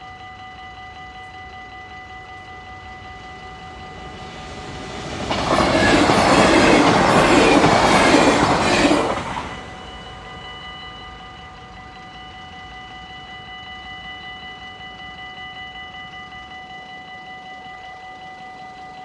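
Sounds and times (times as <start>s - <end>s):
train passing at speed: 0.0s - 18.6s
level crossing warning bells: 0.0s - 19.0s
wheels clacking over rail joints: 3.0s - 10.0s.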